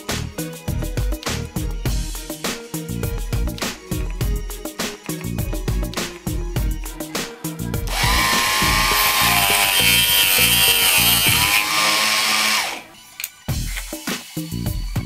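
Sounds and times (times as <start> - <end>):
background music: 0.0 - 15.0
small saw cutting wood: 7.9 - 13.0.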